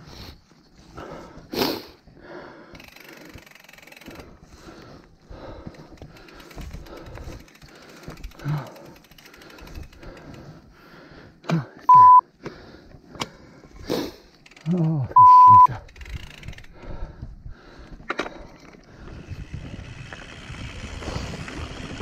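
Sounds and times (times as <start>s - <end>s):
bike rattling over bumps: 2.6s - 11.4s, 15.8s - 22.0s
bike tyres crunching on dirt: 18.9s - 22.0s.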